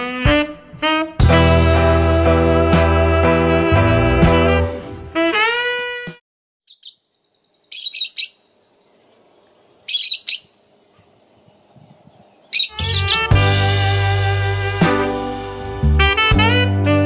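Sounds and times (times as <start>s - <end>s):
saxophone music: 0.0s - 6.2s, 12.6s - 17.0s
lovebirds chirping: 6.6s - 13.4s.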